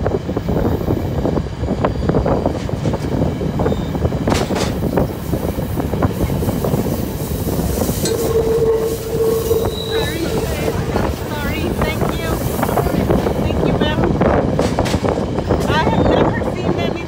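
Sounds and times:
train wheels rumbling on track: 0:00.0 - 0:17.0
train wheel squeal: 0:03.6 - 0:04.0, 0:07.5 - 0:12.7.

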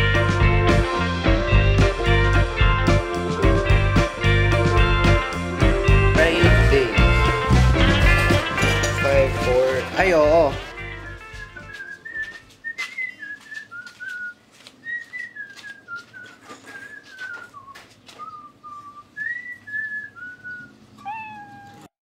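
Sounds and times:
person whistling a slow tune: 0:11.4 - 0:20.7.

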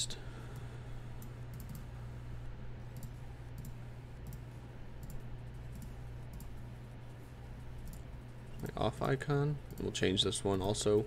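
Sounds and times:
low electrical hum: 0:00.0 - 0:11.0
computer mouse clicks: 0:01.2 - 0:01.9, 0:02.9 - 0:06.6, 0:07.8 - 0:10.0.

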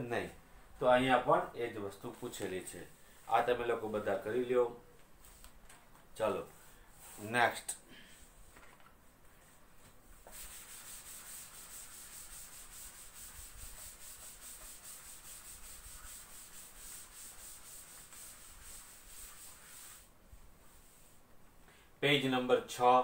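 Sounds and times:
duster rubbing a chalkboard: 0:10.2 - 0:21.2.

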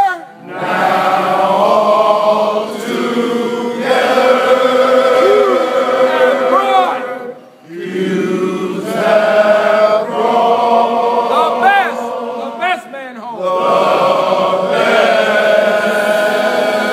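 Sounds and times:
men chanting in unison: 0:00.4 - 0:16.9
whoops: 0:05.2 - 0:05.8.

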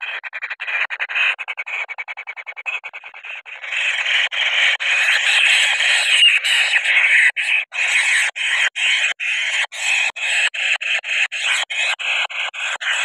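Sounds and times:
nestlings rasping and screeching: 0:02.9 - 0:13.0.

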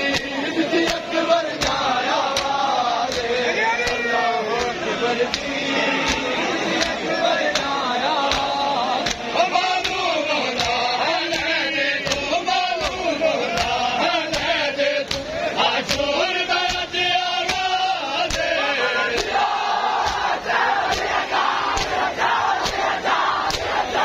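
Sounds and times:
men chanting a lament: 0:00.0 - 0:24.0
chest slaps: 0:14.4 - 0:16.9, 0:17.5 - 0:18.5, 0:20.0 - 0:22.0, 0:22.6 - 0:23.8.

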